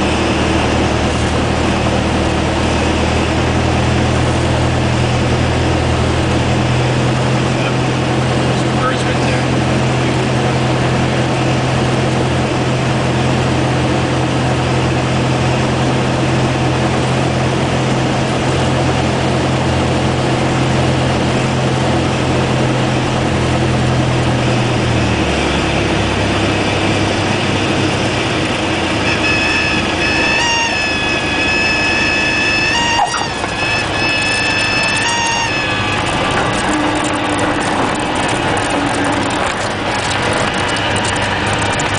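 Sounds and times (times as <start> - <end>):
propeller plane engine drone: 0.0 - 41.9
stall warning horn: 28.4 - 41.7.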